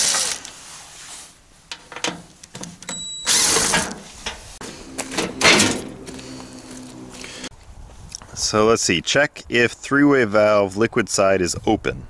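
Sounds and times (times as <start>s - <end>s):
metal panel clattering: 1.7s - 6.0s
cordless drill motor whine: 3.2s - 3.7s.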